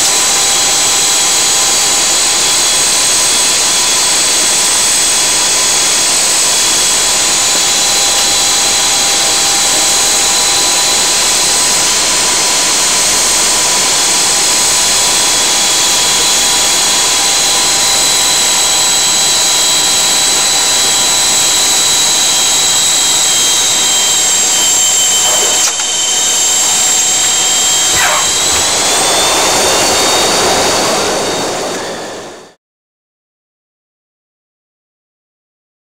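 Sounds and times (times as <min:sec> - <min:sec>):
aircraft engines droning: 0:00.0 - 0:32.6
high-pitched engine whine: 0:00.0 - 0:32.6.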